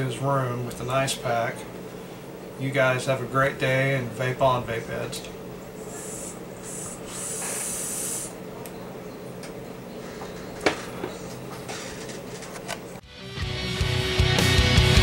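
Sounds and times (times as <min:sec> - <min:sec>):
steady low hum: 0:00.0 - 0:13.1
airy hiss of vape draw: 0:05.8 - 0:08.4
rock music: 0:13.0 - 0:15.0.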